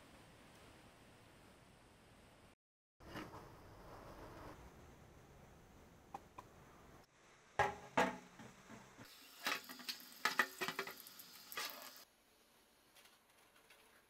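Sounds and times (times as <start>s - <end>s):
metal knocking and scraping: 7.6s - 9.6s
tap water running into sink: 9.1s - 12.0s.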